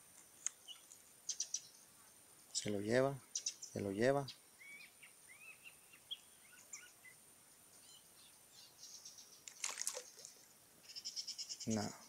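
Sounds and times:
faint bird chirps: 0:00.5 - 0:01.9, 0:03.2 - 0:07.2, 0:07.8 - 0:12.0
swishing splash in water: 0:09.6 - 0:10.3.

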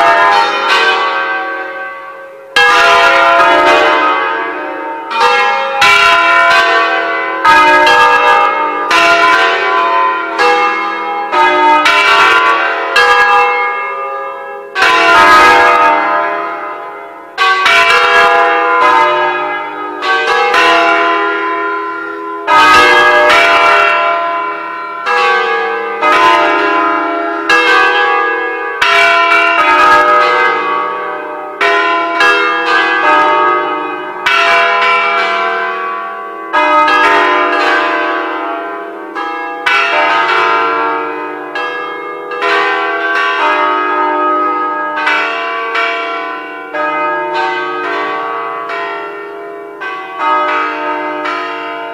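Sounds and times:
church bells ringing: 0:00.0 - 0:51.9.

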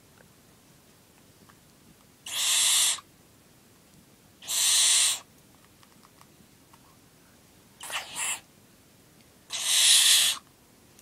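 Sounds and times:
owlet hissing screeches: 0:02.3 - 0:03.0, 0:04.4 - 0:05.2, 0:07.8 - 0:08.4, 0:09.5 - 0:10.4.

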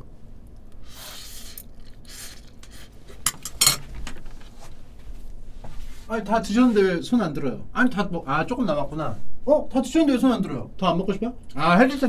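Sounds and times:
noodles slurped: 0:00.7 - 0:03.3
chopsticks clinking on ceramic bowl: 0:03.2 - 0:03.9.

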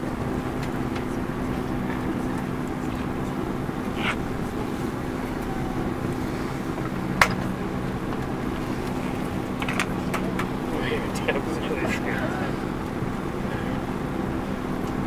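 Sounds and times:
aircraft cabin hum: 0:00.0 - 0:15.0
steady low tones: 0:00.0 - 0:15.0.

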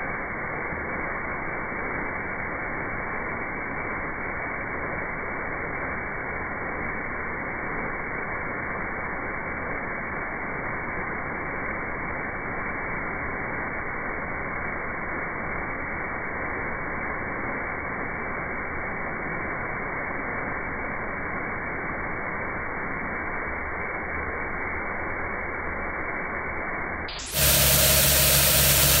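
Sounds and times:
louder sound with steady tones: 0:22.8 - 0:29.0
sweeper brush spinning against turf: 0:27.1 - 0:29.0.

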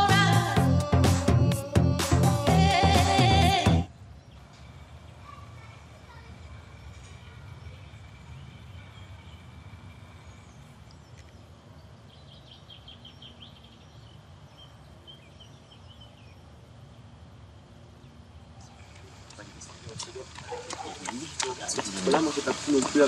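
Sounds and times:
bird chirping: 0:03.9 - 0:17.3, 0:17.9 - 0:23.0.

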